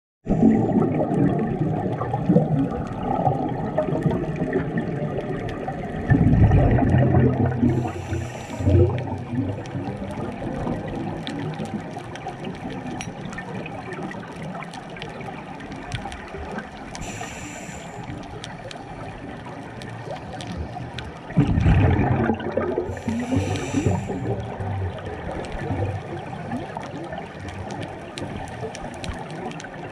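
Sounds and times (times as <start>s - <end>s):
exhaled bubbles gurgling underwater: 0.2s - 29.9s
faint crackling clicks: 0.3s - 29.9s
regulator hissing inhale: 7.7s - 9.0s, 17.0s - 18.2s, 22.9s - 24.4s.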